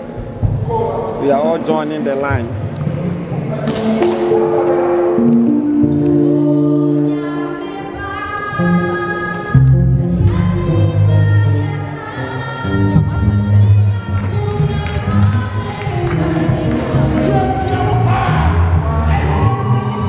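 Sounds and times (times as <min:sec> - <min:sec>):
congregation singing a hymn: 0:14.8 - 0:20.0.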